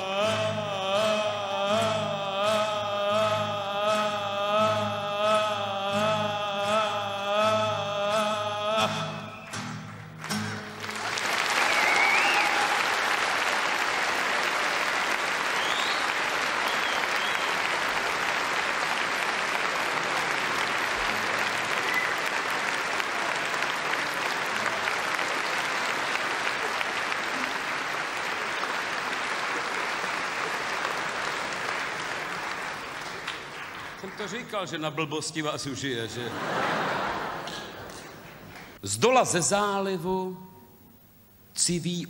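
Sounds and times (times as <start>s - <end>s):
audience applauding: 9.4s - 35.0s, 36.2s - 38.8s
short whistles: 11.6s - 12.6s, 15.6s - 17.6s, 21.8s - 22.3s.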